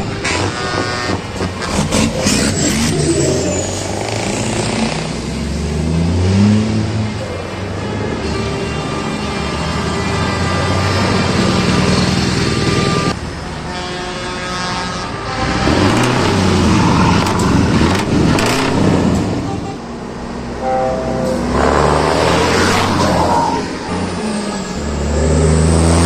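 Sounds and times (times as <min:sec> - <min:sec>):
truck engines revving: 0:00.0 - 0:13.6, 0:15.0 - 0:26.0
air horn chord: 0:19.5 - 0:24.0
short horn toots: 0:20.5 - 0:24.0.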